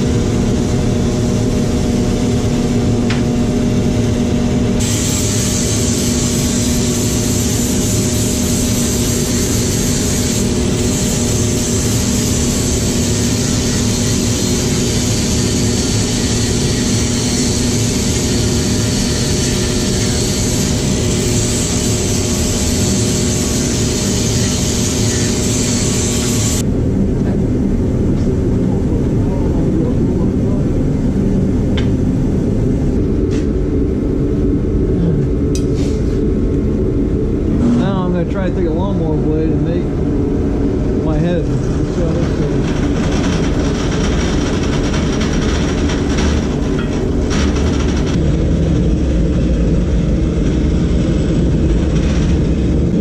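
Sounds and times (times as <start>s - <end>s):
lathe motor hum: 0.0s - 35.5s, 36.4s - 53.0s
tool hissing against spinning wood: 4.7s - 26.6s.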